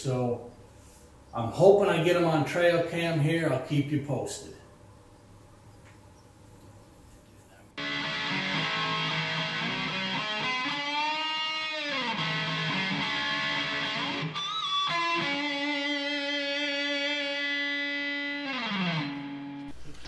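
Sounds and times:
distorted electric guitar: 7.8s - 20.0s.

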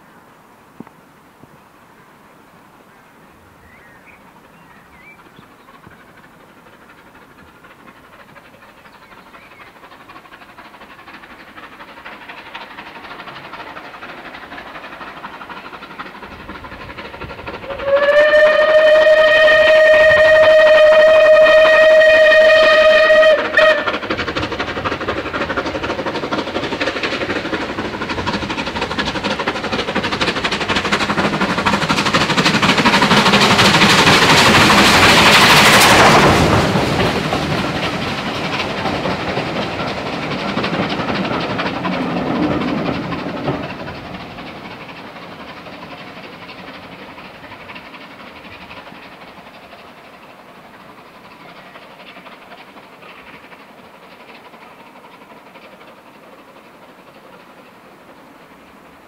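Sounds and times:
steam locomotive approaching: 0.0s - 59.0s
train running noise: 0.0s - 59.0s
steam locomotive whistle: 17.6s - 24.0s.

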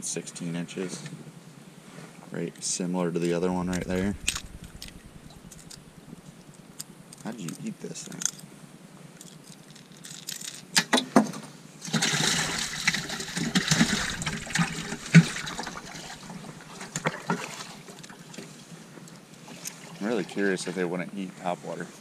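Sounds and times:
sharp thump: 3.7s - 6.2s
fish thrashing in water: 11.8s - 18.6s.

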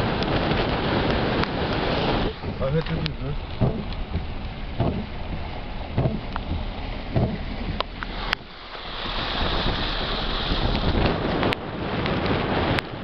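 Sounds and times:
rain: 0.0s - 13.0s
tyres splashing through water: 0.0s - 13.0s
wind noise: 0.0s - 13.0s
steady hiss: 2.2s - 11.2s.

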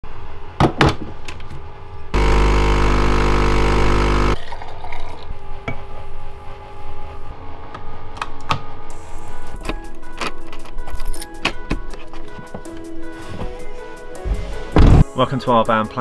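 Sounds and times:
espresso pump humming: 2.2s - 4.6s
milk pouring into mug: 4.4s - 5.3s.

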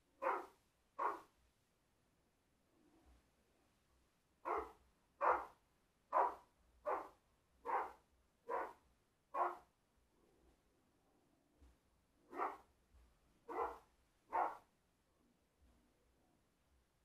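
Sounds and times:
dog barking: 0.2s - 1.3s, 4.4s - 9.7s, 12.3s - 12.7s, 13.4s - 14.7s.

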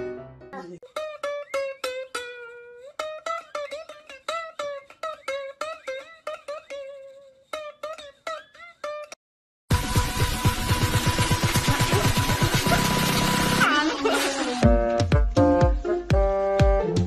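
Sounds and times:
plucked string tune: 0.8s - 13.6s
louder music track: 9.7s - 17.0s.

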